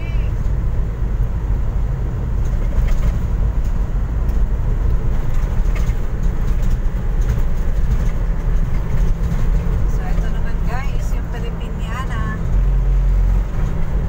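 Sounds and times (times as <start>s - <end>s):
road and engine noise in cabin: 0.0s - 14.0s
faint clicks or rattles: 5.1s - 10.4s.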